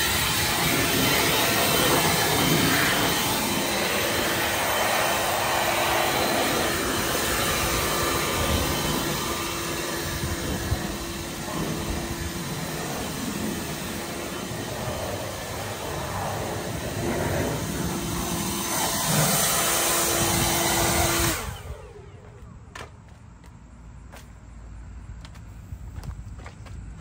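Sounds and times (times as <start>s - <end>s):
leaf blower running: 0.0s - 22.9s.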